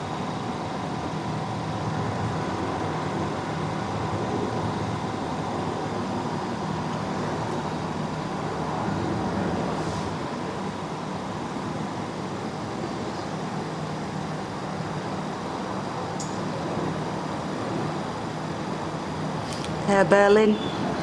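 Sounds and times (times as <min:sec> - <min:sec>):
motorway traffic rumble: 0:00.0 - 0:21.0.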